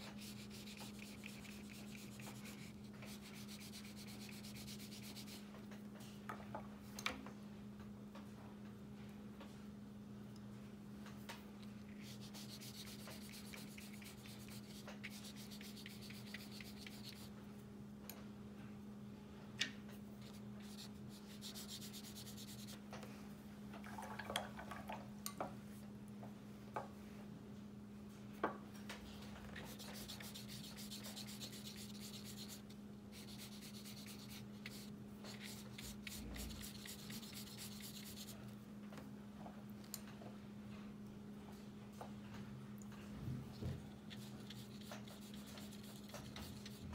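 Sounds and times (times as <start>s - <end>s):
brush scratching on paper: 0.0s - 5.4s, 12.0s - 17.3s, 20.2s - 22.8s, 29.6s - 38.4s, 44.1s - 46.9s
steady low hum: 0.0s - 46.9s.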